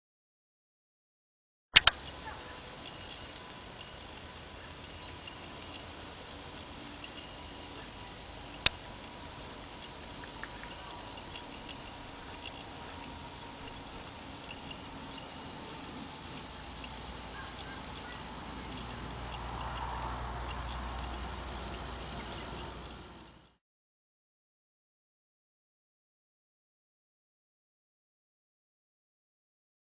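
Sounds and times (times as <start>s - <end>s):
sharp click: 1.8s - 2.0s
night insects trilling: 1.8s - 23.6s.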